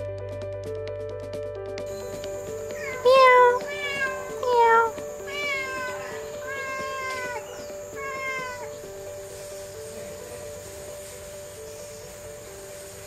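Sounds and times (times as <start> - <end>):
soft background music: 0.0 - 13.0
cat meowing: 2.6 - 8.8.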